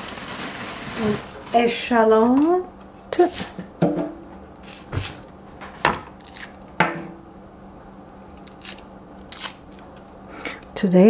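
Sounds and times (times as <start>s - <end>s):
dry skin being peeled: 6.2s - 6.6s, 8.0s - 10.7s.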